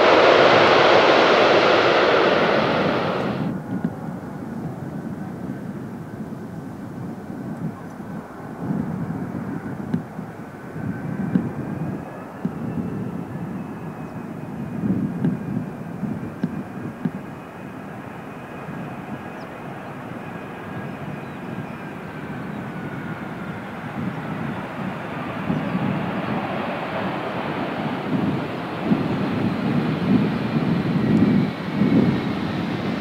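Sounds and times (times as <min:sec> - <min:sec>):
broad engine rush: 0:00.0 - 0:03.6
jet airliner engines whining: 0:00.0 - 0:05.4, 0:08.0 - 0:33.0.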